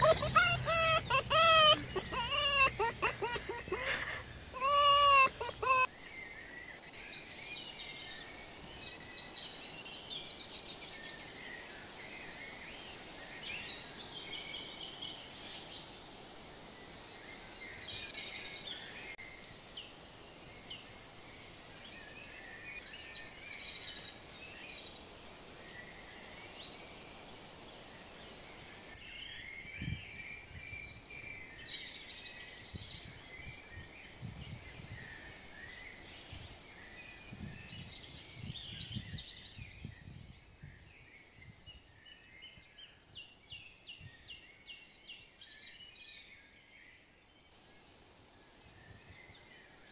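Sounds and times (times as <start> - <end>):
songbirds chirping and trilling: 0.0 - 19.5
outdoor background hiss: 0.0 - 49.9.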